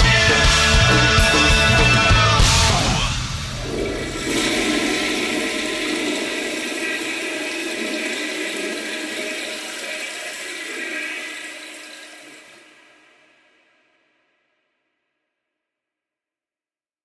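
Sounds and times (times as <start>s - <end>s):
loud rushing noise: 2.8s - 8.8s.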